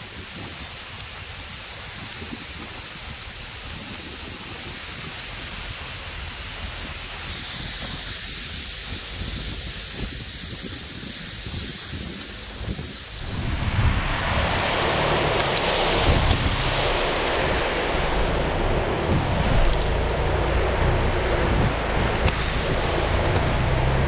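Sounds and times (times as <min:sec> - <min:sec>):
loud rushing sound: 0:13.1 - 0:24.0.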